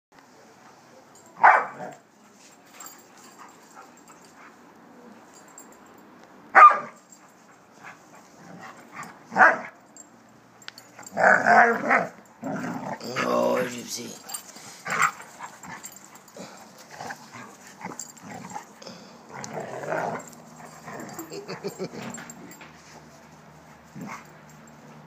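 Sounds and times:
dog barking: 1.4s - 1.9s, 6.6s - 7.0s, 9.4s - 9.8s.

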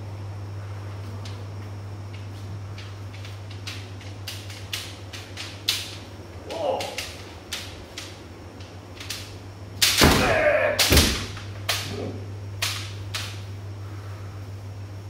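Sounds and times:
bamboo swords clacking: 2.1s - 13.5s
loud shout: 10.0s - 11.0s.

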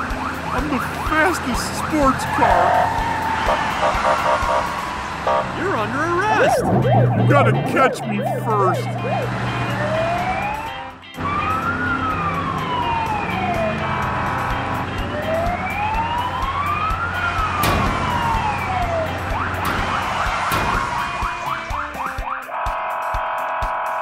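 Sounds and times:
police siren wailing: 0.0s - 24.0s
low engine drone: 3.5s - 10.6s.

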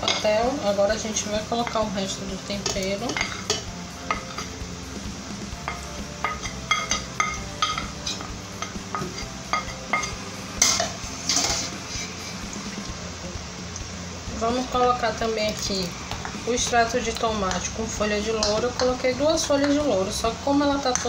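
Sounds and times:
faint meat sizzle: 0.0s - 21.0s
spoon clinking on glass bowl: 5.6s - 11.6s
spoon scraping strokes: 10.6s - 12.5s.

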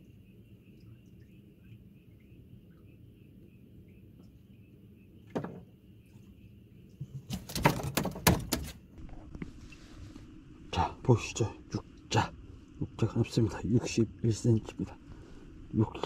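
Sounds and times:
insects chirring: 0.0s - 9.6s, 10.2s - 16.0s
knocks and slaps: 7.0s - 8.8s.

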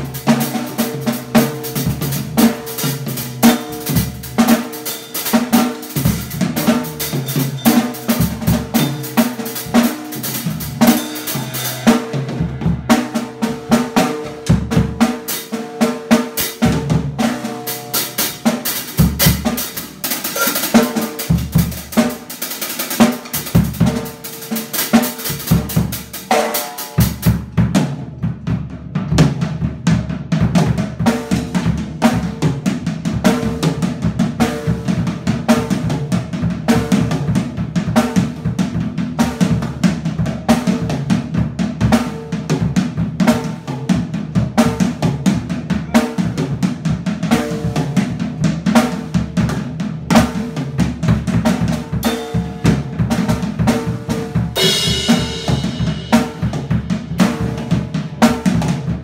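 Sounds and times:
drum kit playing a busy beat: 0.0s - 59.0s.

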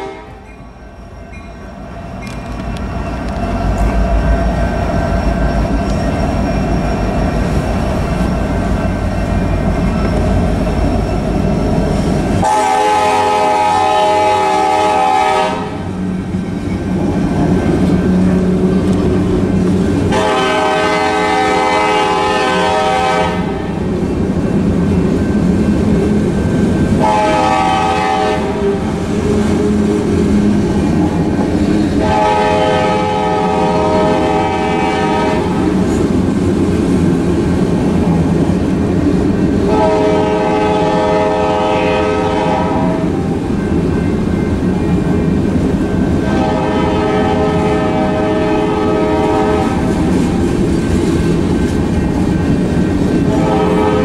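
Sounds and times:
locomotive air horn blasts: 0.0s - 0.5s, 12.4s - 15.9s, 20.1s - 23.7s, 27.0s - 28.8s, 32.0s - 35.6s, 39.7s - 43.2s, 46.3s - 49.9s, 53.2s - 54.0s.

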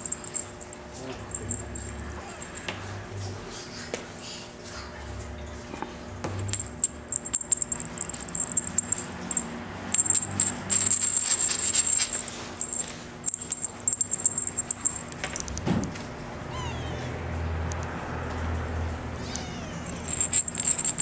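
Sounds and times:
wand toy rattling on tabletop: 6.6s - 15.5s, 19.8s - 21.0s.

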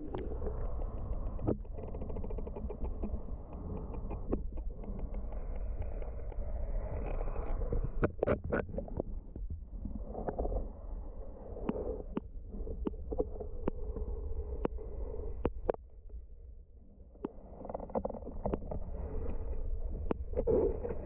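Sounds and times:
sharp underwater clicks: 0.0s - 7.2s
underwater low rumble: 0.0s - 21.0s.

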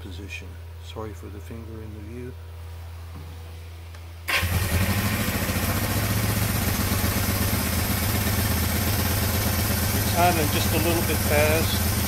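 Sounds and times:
motorcycle engine idling: 4.4s - 12.0s.

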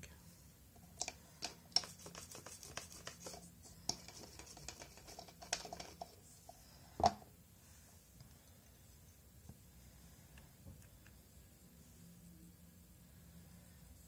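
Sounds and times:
light clicks and scratches: 0.8s - 6.6s.

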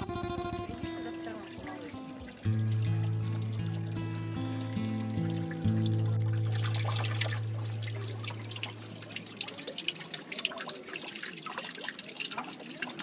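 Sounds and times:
background music note: 0.0s - 9.1s
water trickling and dripping: 0.0s - 13.0s.

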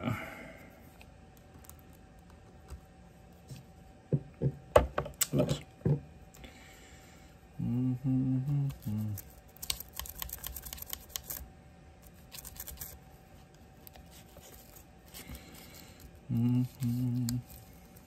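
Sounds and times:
man humming low notes: 7.5s - 9.3s, 16.2s - 17.6s.

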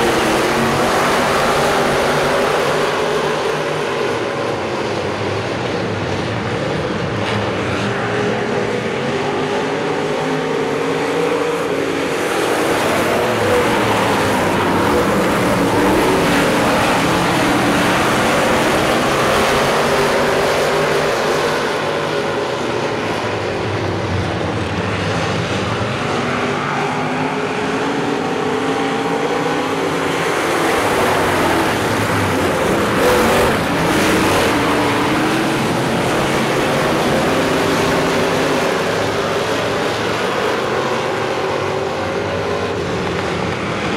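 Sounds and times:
stock car engines racing: 0.0s - 43.9s.

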